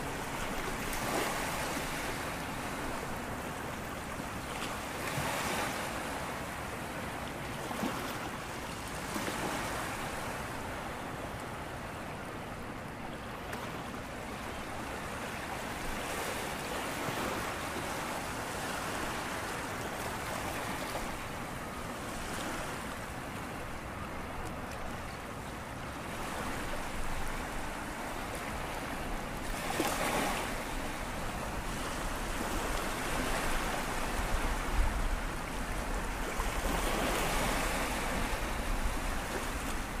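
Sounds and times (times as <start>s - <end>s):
sea waves washing on shore: 0.0s - 40.0s.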